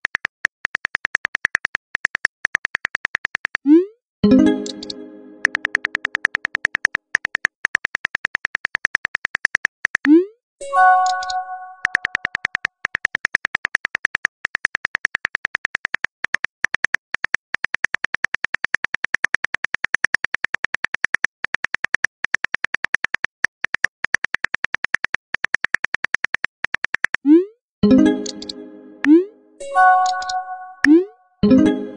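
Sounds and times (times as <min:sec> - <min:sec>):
phone keyboard tapping clicks: 0:04.5 - 0:10.1, 0:10.9 - 0:27.2, 0:28.1 - 0:28.6, 0:30.0 - 0:31.0
brief rising tone: 0:27.3 - 0:31.9.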